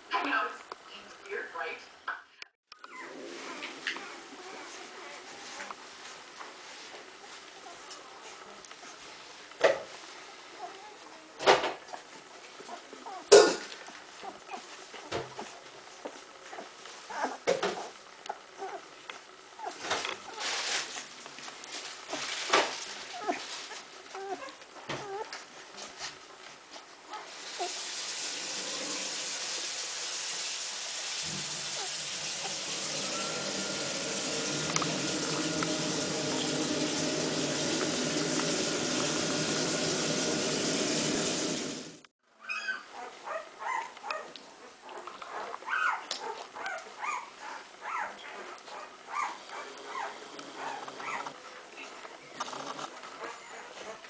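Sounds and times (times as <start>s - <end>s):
puppies squeaking and whimpering: 2.8s - 5.5s, 23.1s - 25.4s, 42.4s - 44.3s, 45.3s - 54.0s
steady rushing hiss: 27.3s - 42.1s.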